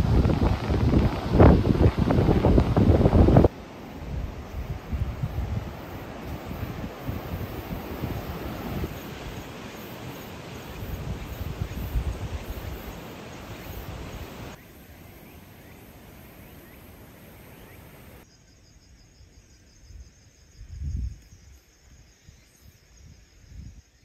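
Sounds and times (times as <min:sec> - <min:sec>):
wind rushing over microphone: 0:00.0 - 0:14.6
insects chirring: 0:00.0 - 0:24.0.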